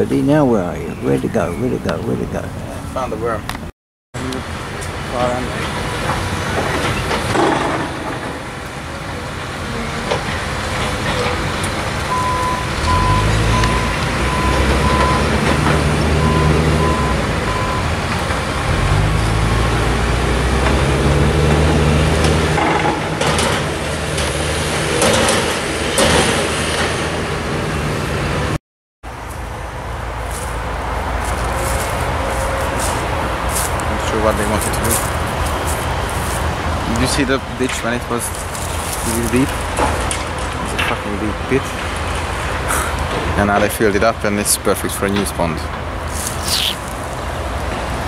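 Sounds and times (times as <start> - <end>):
excavator diesel engine working: 4.2 - 28.6.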